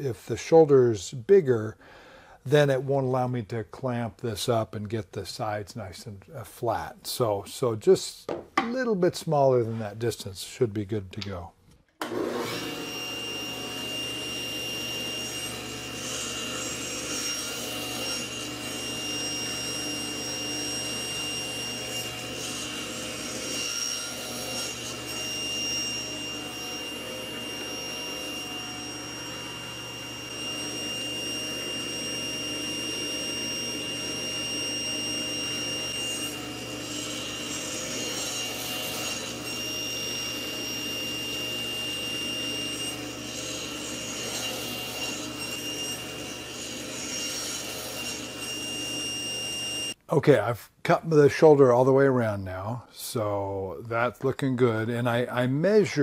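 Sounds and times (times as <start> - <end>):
saw cutting wood: 12.0 - 50.0
table saw whine: 12.0 - 50.0.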